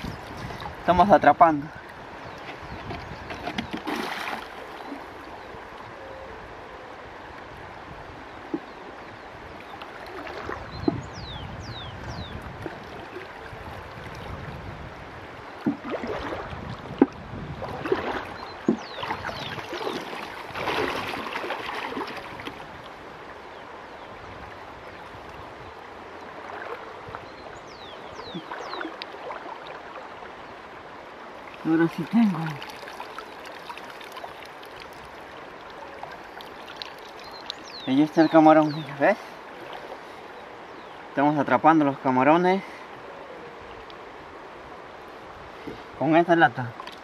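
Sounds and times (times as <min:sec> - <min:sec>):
water sloshing and splashing: 0:00.0 - 0:05.8, 0:08.2 - 0:11.3, 0:12.1 - 0:23.4, 0:24.6 - 0:40.9, 0:46.6 - 0:47.0
river rushing: 0:03.8 - 0:47.0.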